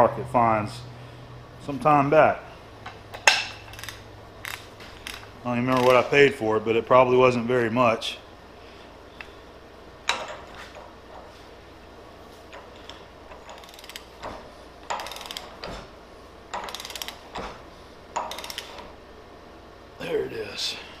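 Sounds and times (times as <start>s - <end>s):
ratchet clicking: 3.6s - 6.1s, 12.5s - 15.7s, 16.5s - 17.4s, 18.2s - 18.9s.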